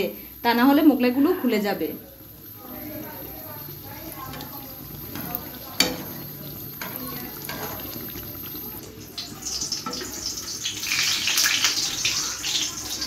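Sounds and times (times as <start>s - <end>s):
flatbread sizzling in hot oil: 0.1s - 13.0s
metal utensil clinking on pan: 5.1s - 8.0s, 9.6s - 10.3s.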